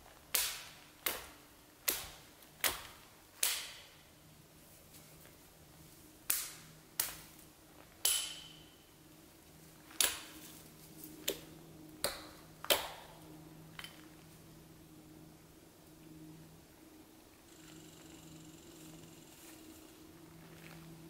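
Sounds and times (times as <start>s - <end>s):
faint low hum: 0.0s - 21.0s
hatchet chopping wood: 8.0s - 8.6s, 12.0s - 13.1s.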